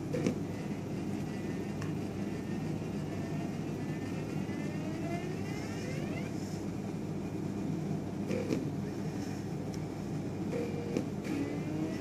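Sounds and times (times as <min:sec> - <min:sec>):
stepper motor whine: 0:00.0 - 0:06.6, 0:10.5 - 0:12.0
steady low hum: 0:00.0 - 0:12.0.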